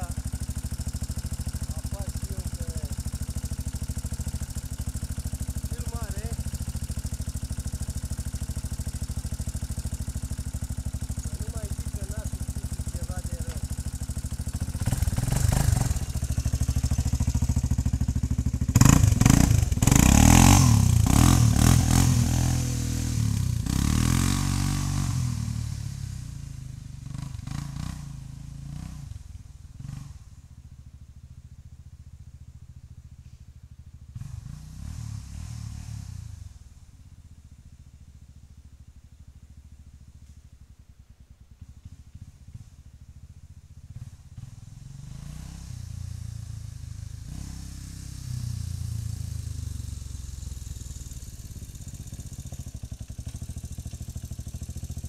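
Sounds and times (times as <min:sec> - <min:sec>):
quad engine revving: 0:00.0 - 0:00.3, 0:05.6 - 0:06.7, 0:11.2 - 0:29.2, 0:34.2 - 0:36.4, 0:44.0 - 0:52.4.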